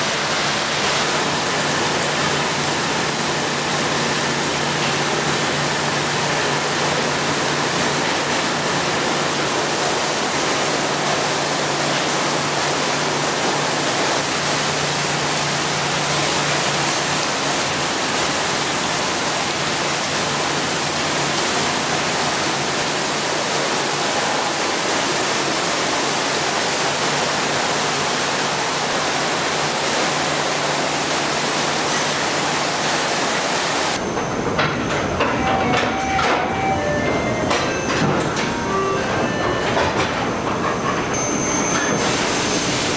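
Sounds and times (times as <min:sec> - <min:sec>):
low machine hum: 0:33.7 - 0:42.9.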